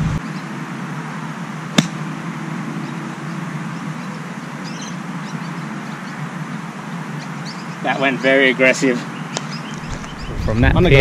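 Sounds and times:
golf club striking ball: 1.7s - 2.0s.

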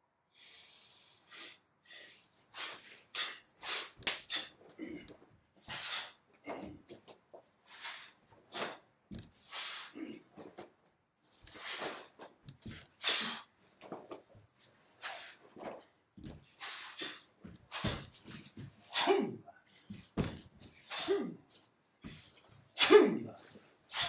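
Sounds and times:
sharp hissing exhalations: 0.4s - 4.5s, 5.7s - 6.2s, 7.7s - 8.8s, 9.4s - 10.0s, 13.0s - 13.5s, 16.6s - 18.0s.

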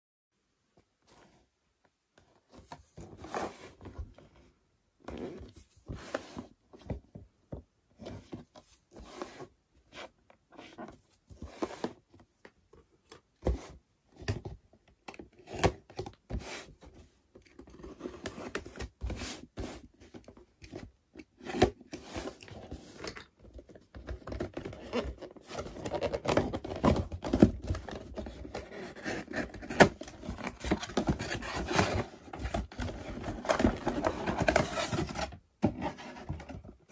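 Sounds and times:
cardboard and paper rustling: 8.0s - 14.6s, 15.2s - 36.9s.

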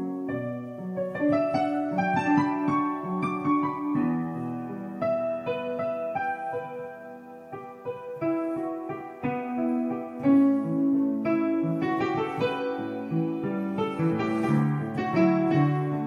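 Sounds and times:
solo piano playing: 0.0s - 16.0s.

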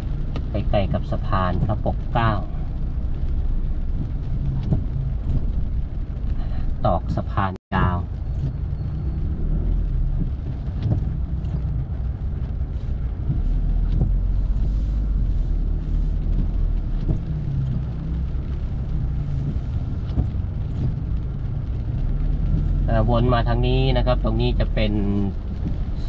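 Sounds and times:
car engine and road rumble: 0.0s - 26.0s.

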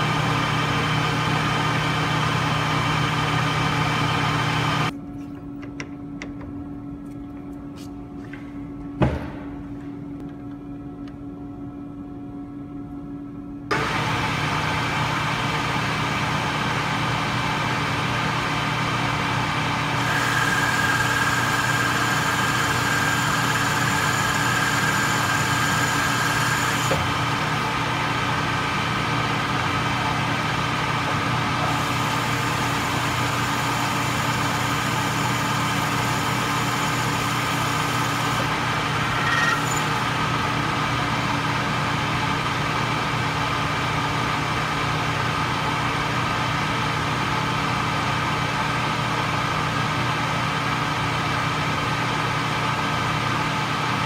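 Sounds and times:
metal lathe humming: 19.3s - 40.9s
hiss of lathe cut: 20.0s - 27.2s, 31.7s - 38.5s.

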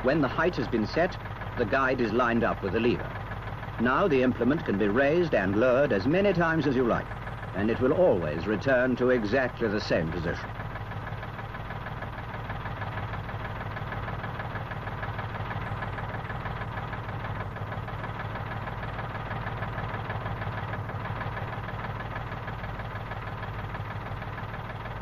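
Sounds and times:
tractor engine running: 0.0s - 25.0s.

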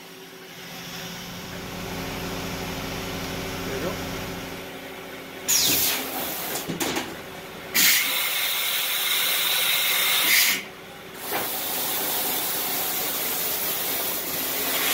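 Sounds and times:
coolant and air spray hissing: 7.8s - 10.6s, 11.2s - 14.9s.

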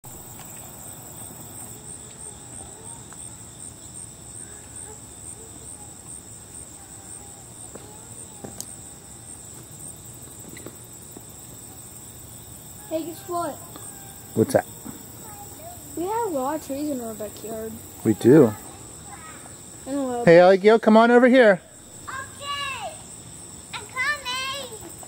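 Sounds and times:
high-pitched insect chorus: 0.0s - 25.0s.

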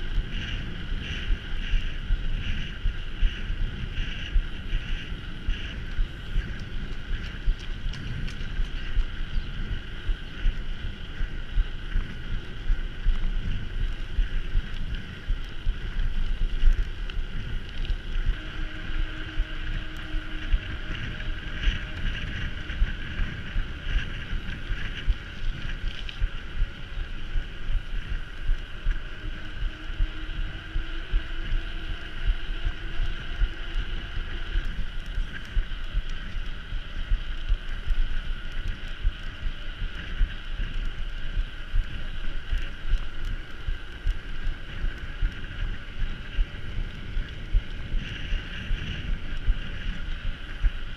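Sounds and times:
bike rumbling over rough ground: 0.0s - 50.9s
steady high hum: 0.0s - 50.9s
wind buffeting microphone: 0.0s - 50.9s.

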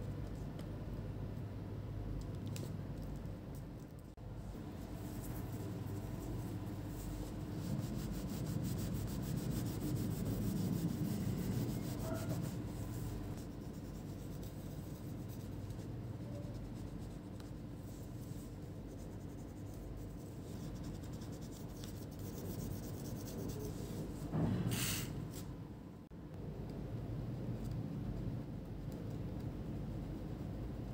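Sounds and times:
low steady hum: 0.0s - 30.9s.

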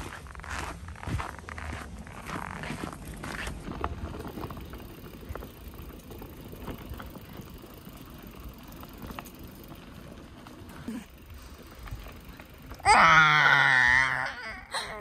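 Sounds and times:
footsteps crunching on snow: 0.0s - 4.6s
gravel ticks: 0.0s - 14.3s
bicycle tyres rolling on gravel: 0.0s - 14.5s.

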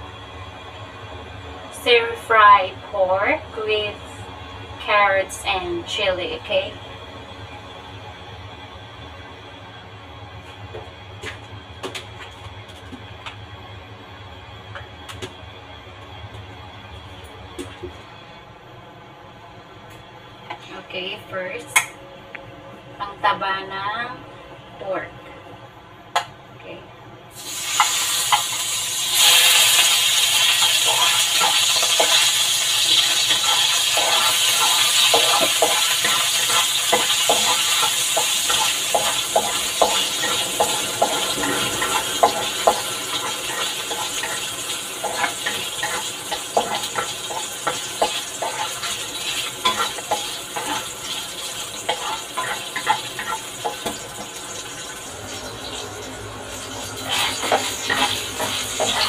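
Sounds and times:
pork fat sizzling in a wok: 27.3s - 59.0s
spatula scraping a pan: 29.2s - 54.0s, 57.0s - 59.0s.

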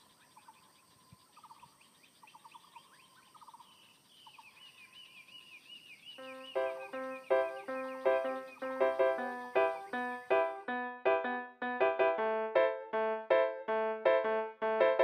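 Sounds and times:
birds trilling: 1.4s - 10.5s
high rising chirps: 6.2s - 10.8s.

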